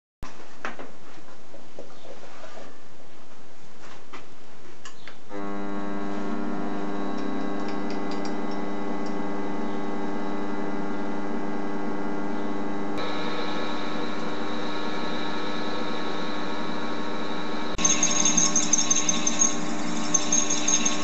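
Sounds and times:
lathe motor whining: 5.3s - 9.2s, 13.0s - 21.0s.

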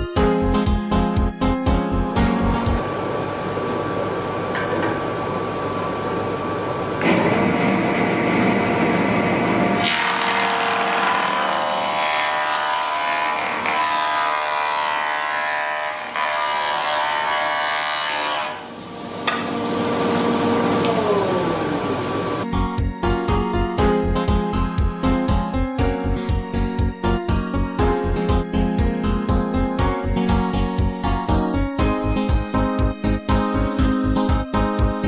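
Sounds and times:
jointer cutterhead whine: 2.8s - 22.4s
board being planed: 9.8s - 21.8s.

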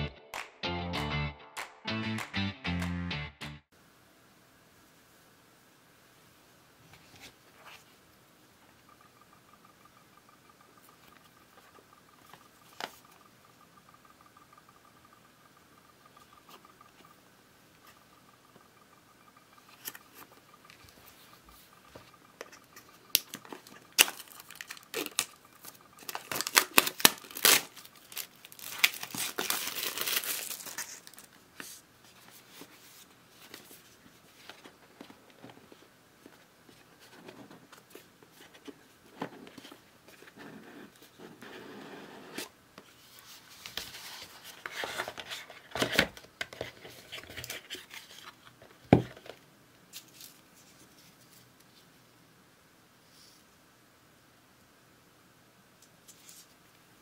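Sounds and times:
packaging tearing and crinkling: 23.2s - 31.4s.

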